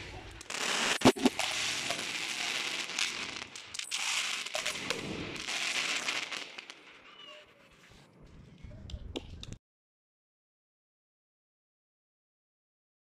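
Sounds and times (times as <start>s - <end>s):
firework bang: 0.0s - 6.7s
firework crackling: 0.0s - 7.0s.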